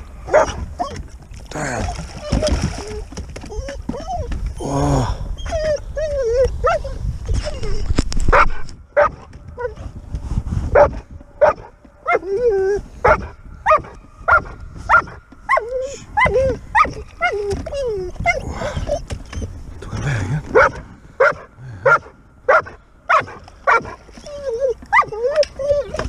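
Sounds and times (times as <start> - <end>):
dog whining and yipping: 0.3 - 1.1, 1.9 - 4.4, 5.4 - 8.0, 9.1 - 9.8, 10.8 - 19.6, 22.6 - 26.0.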